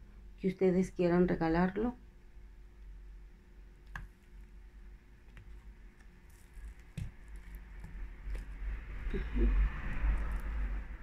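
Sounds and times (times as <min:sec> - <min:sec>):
soft rustling of craft materials: 0:03.9 - 0:11.0.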